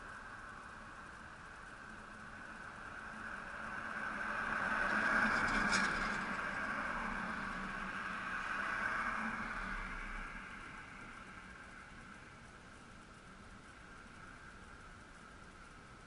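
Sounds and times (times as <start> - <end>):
cars driving past: 2.2 - 12.2.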